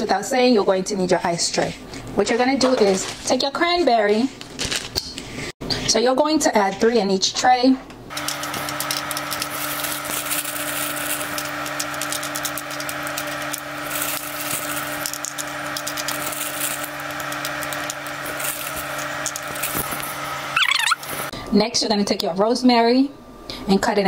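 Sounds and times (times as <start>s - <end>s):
steady hum: 7.9s - 23.9s.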